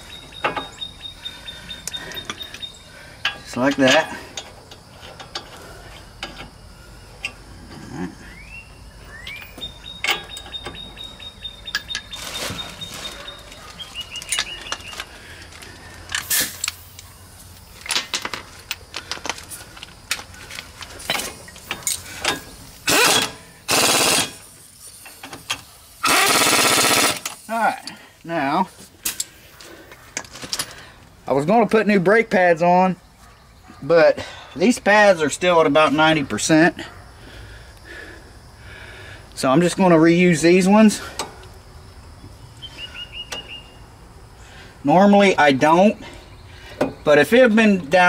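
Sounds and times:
hand tools and sockets clinking: 0:00.0 - 0:01.0, 0:01.7 - 0:06.6, 0:09.2 - 0:26.2, 0:29.0 - 0:30.9
air hose being coupled: 0:14.0 - 0:17.1, 0:17.8 - 0:23.4
pneumatic impact wrench bursts: 0:16.2 - 0:16.9, 0:21.1 - 0:27.5.

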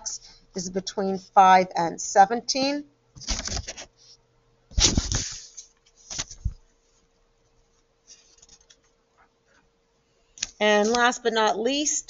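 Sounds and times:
paper rustling: 0:03.2 - 0:03.9, 0:04.7 - 0:06.6, 0:08.0 - 0:08.9.

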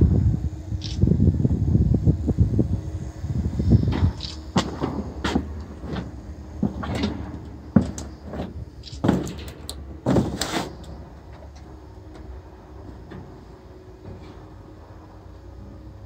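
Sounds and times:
steady low hum: 0:00.0 - 0:16.0
metal knocks and rattles of barbecue grates: 0:03.9 - 0:11.7.

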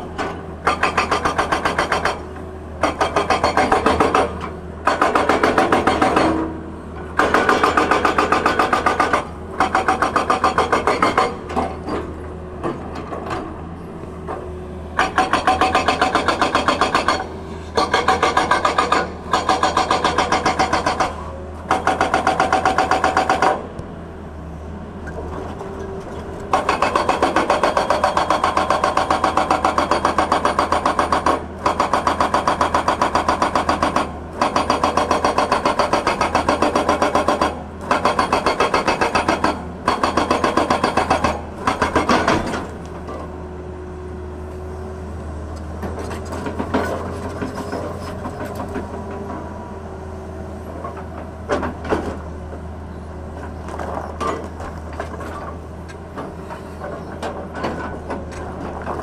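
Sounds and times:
hydraulic rock breaker hammering: 0:00.0 - 0:13.5, 0:15.0 - 0:23.7, 0:25.1 - 0:43.3.

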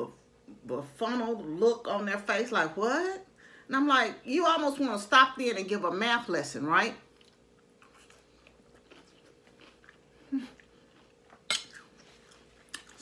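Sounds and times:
person chewing salad: 0:07.1 - 0:13.0.

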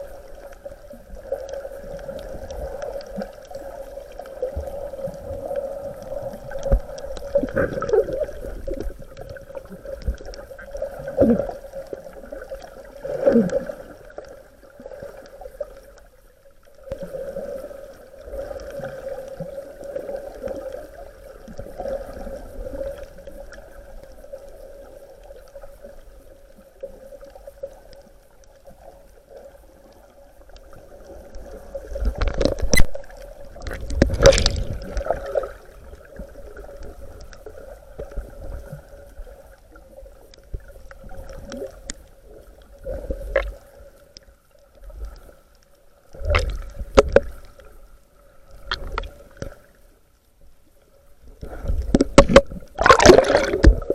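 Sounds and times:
water sloshing and gurgling: 0:00.0 - 0:53.9
loud splashing: 0:52.2 - 0:53.9.

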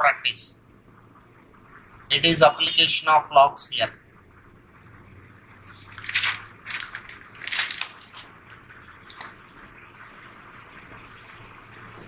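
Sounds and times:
paper pages rustling: 0:05.7 - 0:08.3.

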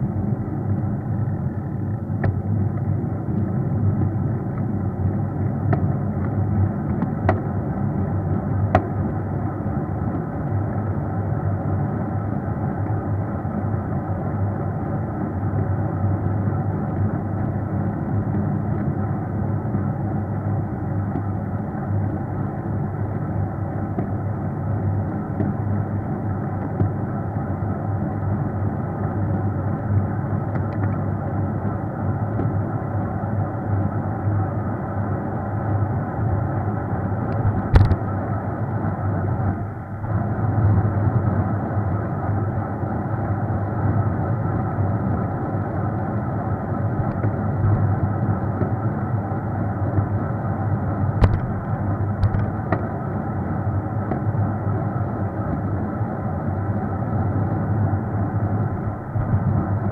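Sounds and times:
sharp clicks or knocks: 0:51.2 - 0:52.5.

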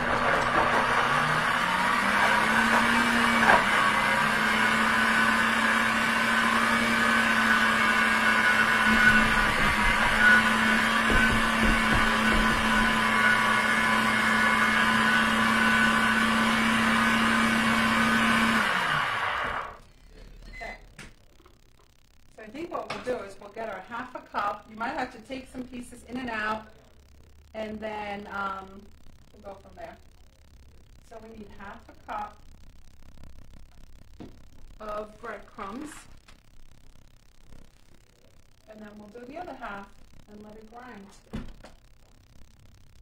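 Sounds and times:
blender grinding bread: 0:00.0 - 0:19.8.

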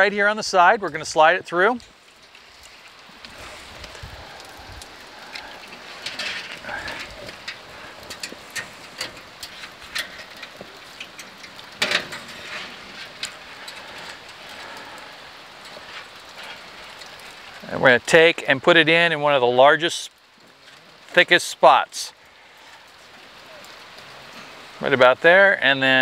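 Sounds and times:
steady rain: 0:00.0 - 0:26.0
probe wire clicking and rustling: 0:01.8 - 0:17.4.

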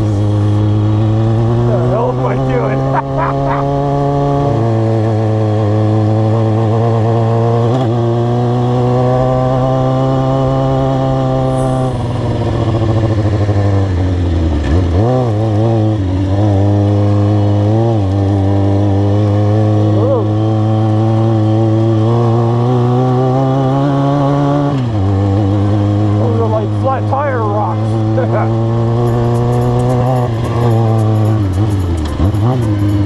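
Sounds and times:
motorcycle engine running: 0:00.0 - 0:33.0.

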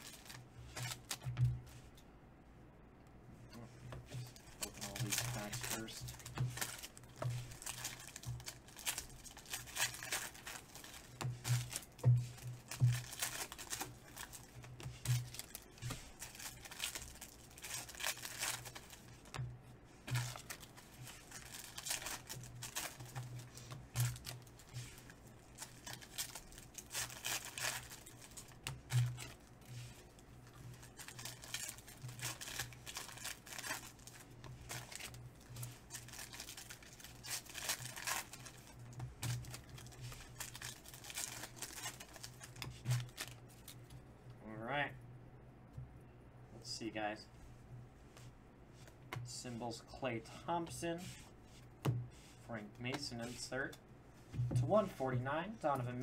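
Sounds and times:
foil wrappers tearing and crinkling: 0:00.0 - 0:01.2, 0:04.4 - 0:19.4, 0:20.1 - 0:29.5, 0:30.4 - 0:43.8.

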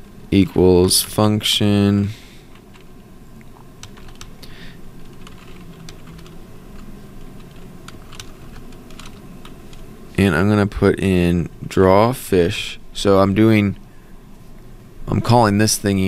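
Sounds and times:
faint steady hum: 0:00.0 - 0:16.0
keyboard typing: 0:03.8 - 0:04.4, 0:05.0 - 0:09.8.

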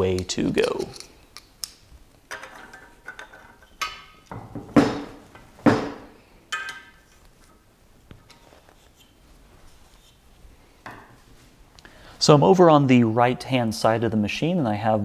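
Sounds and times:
metal tools clinking: 0:06.5 - 0:07.0.

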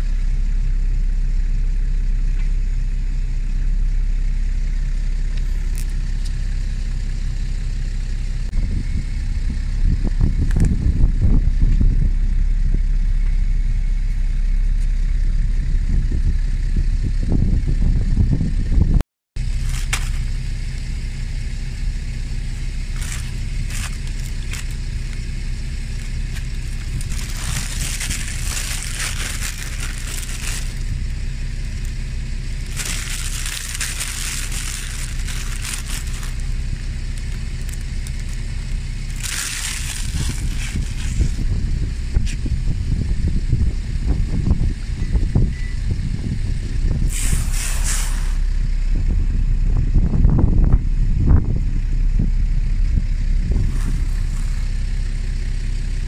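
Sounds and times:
car engine rumbling: 0:00.0 - 0:56.0
rustling hiss: 0:47.1 - 0:48.5.

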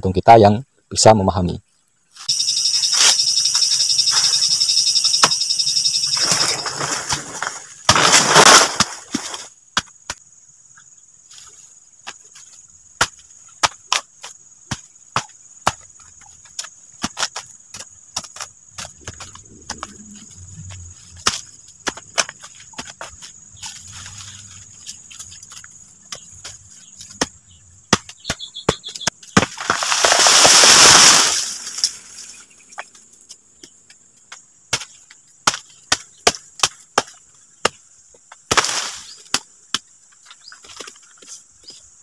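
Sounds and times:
faint insect whine: 0:00.4 - 0:42.0
insects buzzing shrilly: 0:02.2 - 0:09.6, 0:28.4 - 0:32.8.

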